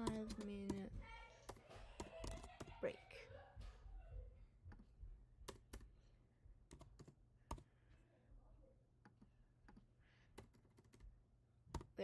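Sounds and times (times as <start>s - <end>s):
computer keyboard typing: 0.0s - 0.9s, 1.5s - 2.8s, 5.4s - 5.9s, 6.7s - 7.7s, 10.4s - 11.1s, 11.7s - 12.0s.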